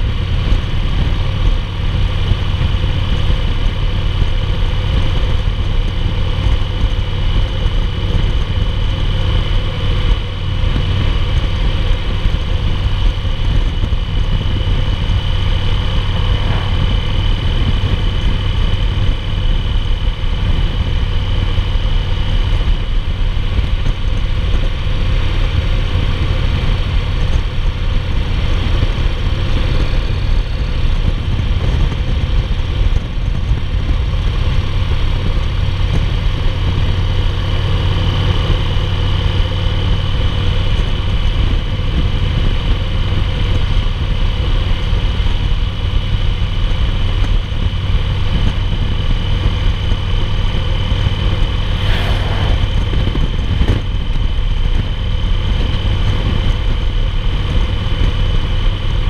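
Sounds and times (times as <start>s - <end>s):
motorcycle engine cruising: 0.0s - 36.0s
wind noise: 0.0s - 37.5s, 47.0s - 59.0s.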